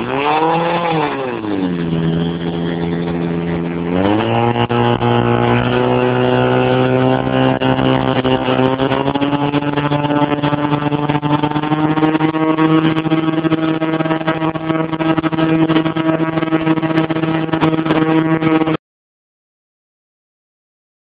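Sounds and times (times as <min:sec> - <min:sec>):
pump engine running: 0:00.0 - 0:18.8.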